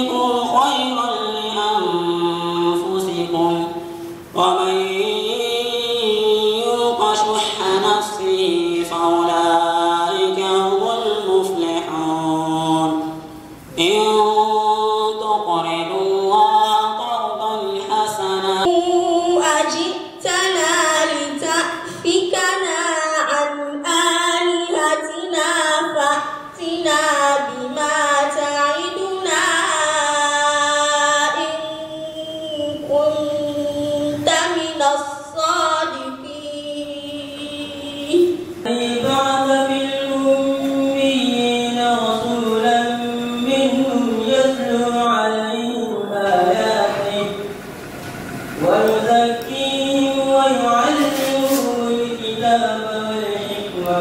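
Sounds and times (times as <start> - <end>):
girl chanting melodically: 18.7 - 41.6.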